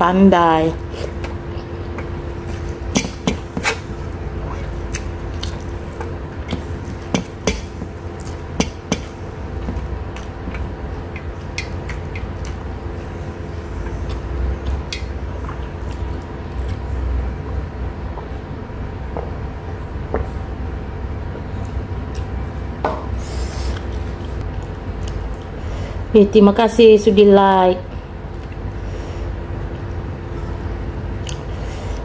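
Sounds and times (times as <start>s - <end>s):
steady low hum: 0.0s - 32.0s
person chewing food: 0.8s - 17.0s, 23.4s - 25.6s, 31.2s - 32.0s.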